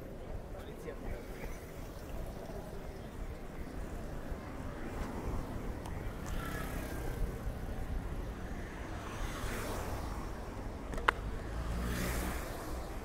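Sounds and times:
cars passing: 0.0s - 13.0s.

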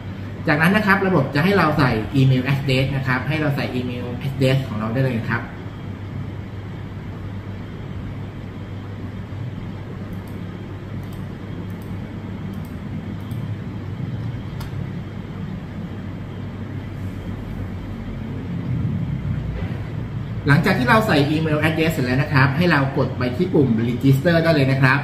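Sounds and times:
low rumble and hum: 0.0s - 25.0s.

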